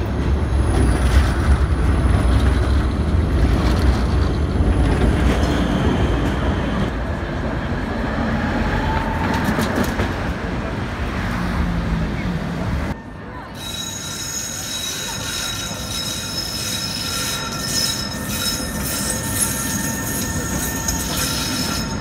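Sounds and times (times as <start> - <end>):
tram wheels rumbling on rail: 0.0 - 22.0
wheel squeal: 13.6 - 22.0.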